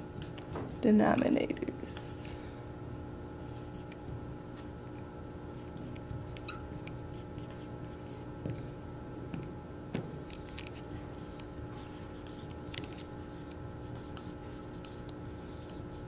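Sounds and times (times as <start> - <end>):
faint steady hum: 0.0 - 16.0
marker squeaking on plastic: 5.6 - 8.2.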